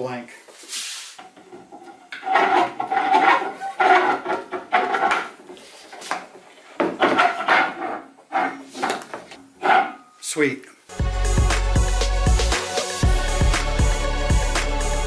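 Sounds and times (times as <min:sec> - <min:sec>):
threaded rod scraping against wood: 0:01.2 - 0:06.4, 0:07.0 - 0:10.1.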